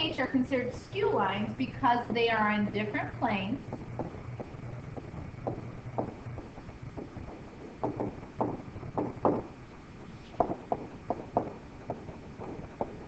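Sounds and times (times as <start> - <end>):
faint low hum: 0.0 - 13.0
stylus tapping and scraping screen: 3.6 - 13.0.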